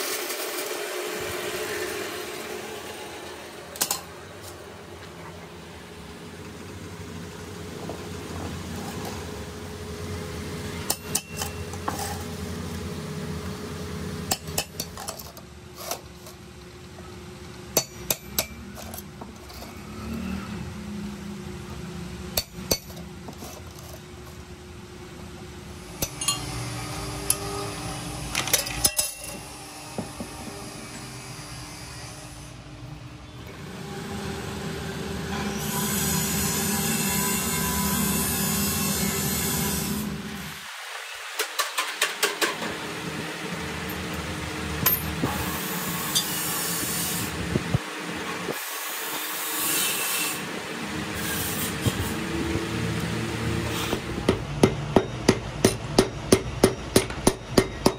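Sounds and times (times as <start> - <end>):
hand tools tapping on metal: 3.8 - 4.6, 10.8 - 12.3, 14.3 - 16.4, 17.7 - 19.8, 22.4 - 24.4, 26.0 - 26.5, 28.4 - 29.4, 54.2 - 57.9.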